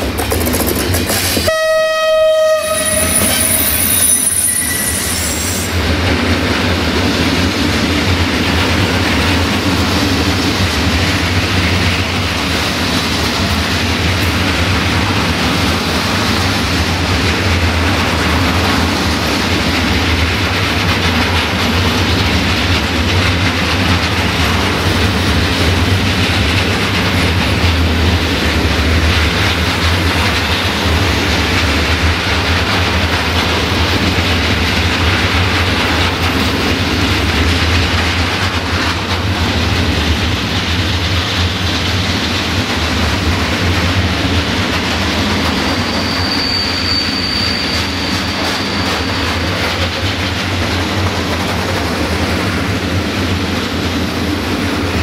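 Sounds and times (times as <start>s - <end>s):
train horn blast: 1.4s - 5.5s
freight wagons rumbling and clattering: 5.8s - 46.6s.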